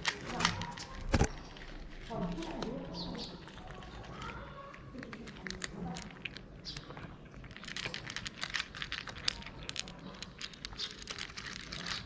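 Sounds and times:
cat chewing dry kibble: 0.0s - 12.0s.

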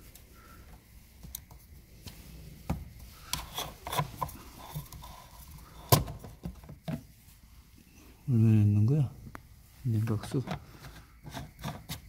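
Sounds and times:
hand scraping plastic: 1.2s - 7.2s, 9.9s - 12.0s.

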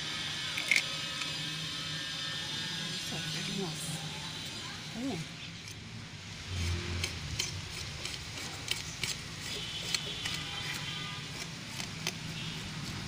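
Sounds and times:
blade scraping fish: 6.5s - 13.0s.

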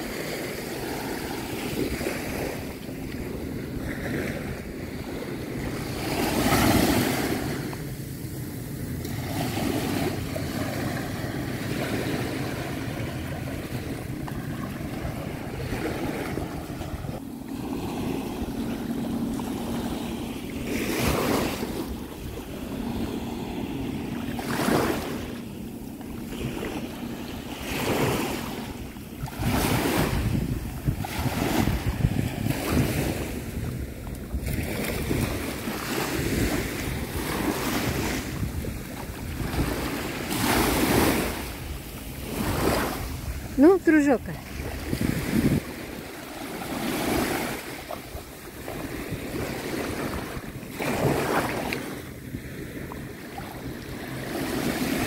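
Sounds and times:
small waves washing: 0.0s - 55.0s
wind buffeting microphone: 0.0s - 55.0s.

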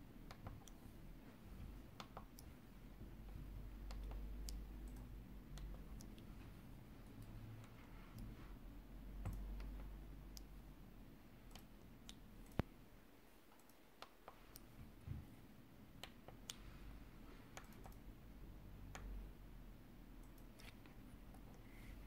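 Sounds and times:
low steady hum: 0.0s - 22.0s
fingertip tapping keypad keys: 0.2s - 0.9s, 1.6s - 8.4s, 9.1s - 10.6s, 11.4s - 12.7s, 16.0s - 16.6s, 17.5s - 18.1s.

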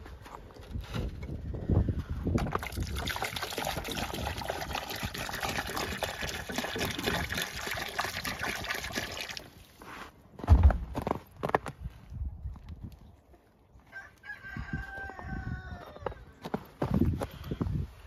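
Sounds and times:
water pouring and splashing: 2.4s - 9.8s
dull thump: 10.4s - 11.1s.

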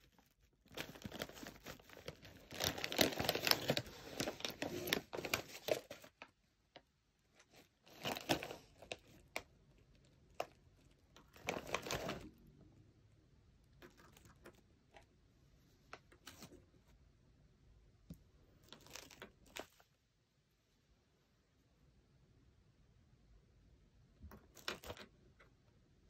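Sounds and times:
plastic snack bag crinkling: 0.0s - 6.3s, 7.5s - 12.4s, 18.6s - 19.9s.

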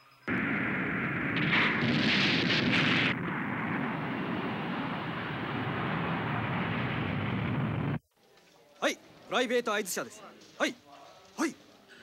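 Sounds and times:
rocket engines roaring: 0.3s - 8.0s.

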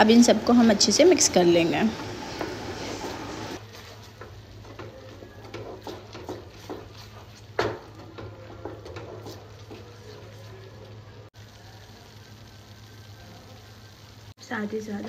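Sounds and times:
wooden spatula scraping a pan: 1.9s - 10.9s.

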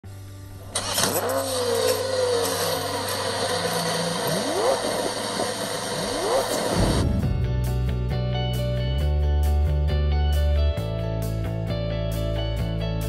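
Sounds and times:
car engine idling: 0.1s - 7.5s
engine revving: 0.6s - 7.4s.

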